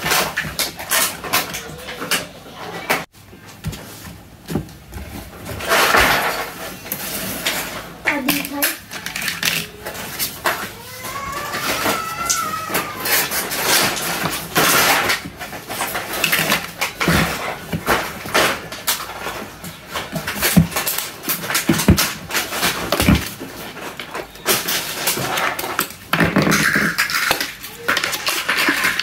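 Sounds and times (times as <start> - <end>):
plastic parts scraping: 0.0 - 29.0
plastic toy pieces clicking: 7.4 - 29.0.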